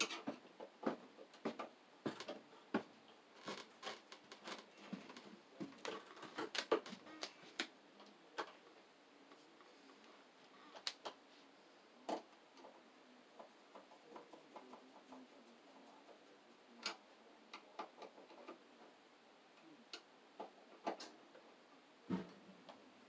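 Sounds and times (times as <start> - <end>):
clicks and taps of wires: 0.0 - 8.6.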